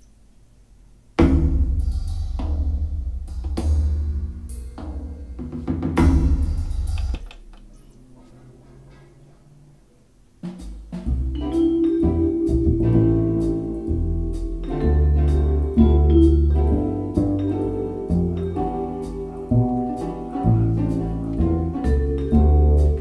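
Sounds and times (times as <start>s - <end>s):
music playing: 10.5s - 23.0s
steady bass line: 10.9s - 23.0s.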